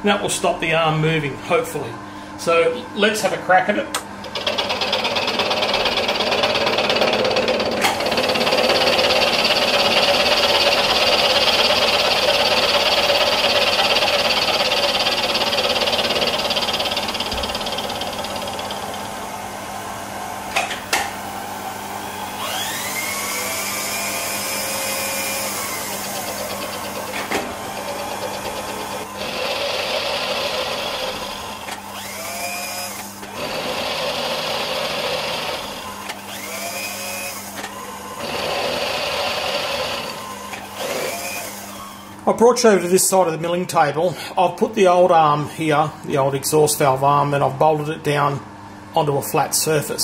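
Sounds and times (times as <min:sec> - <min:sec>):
milling machine cutting metal: 0:04.2 - 0:19.3, 0:20.5 - 0:42.2.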